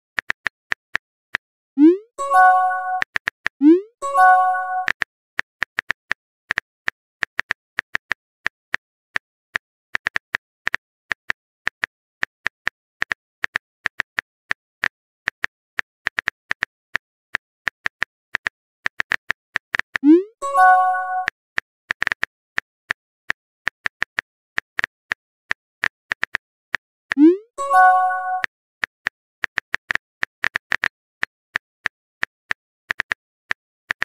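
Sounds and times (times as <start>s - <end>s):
message chime: 1.8s - 3.0s, 3.6s - 4.9s, 20.0s - 21.3s, 27.2s - 28.4s.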